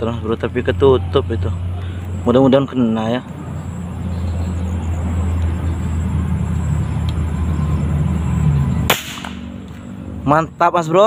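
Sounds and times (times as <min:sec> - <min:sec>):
steady low hum: 0:00.0 - 0:11.0
rifle shot: 0:08.9 - 0:09.5.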